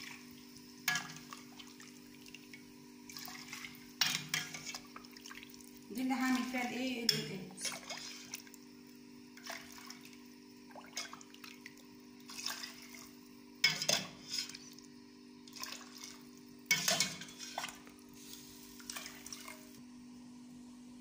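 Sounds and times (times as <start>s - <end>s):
metal ladle scraping a pot: 7.1s - 8.4s, 13.6s - 14.7s, 15.8s - 17.8s
liquid splashing: 7.6s - 8.6s, 9.4s - 14.5s, 15.5s - 17.9s.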